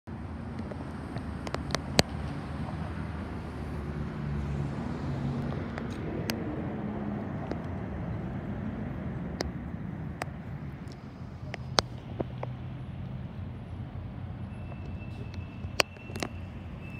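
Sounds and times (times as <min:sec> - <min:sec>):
sharp clicks: 0:14.7 - 0:16.5.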